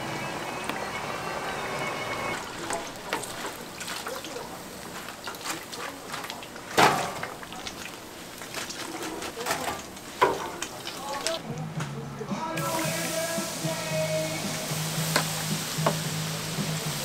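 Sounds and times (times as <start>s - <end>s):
utensils and dishes clinking: 2.3s - 11.9s
liquid pouring: 2.4s - 11.4s
dishes clattering: 5.0s - 7.8s, 8.4s - 11.4s.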